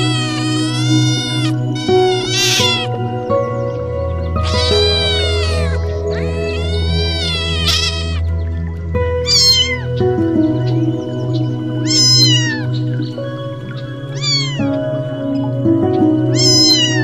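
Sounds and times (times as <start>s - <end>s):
cat meowing: 0.0s - 3.0s, 4.4s - 8.2s, 9.2s - 9.8s, 11.8s - 12.6s, 14.2s - 14.7s, 16.4s - 17.0s
music with long held notes: 0.0s - 17.0s.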